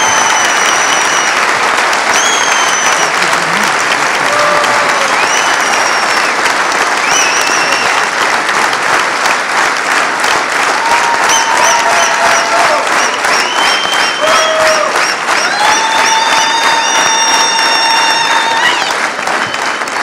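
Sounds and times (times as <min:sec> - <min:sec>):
crowd calls: 0:00.0 - 0:08.8
large audience clapping: 0:00.0 - 0:20.0.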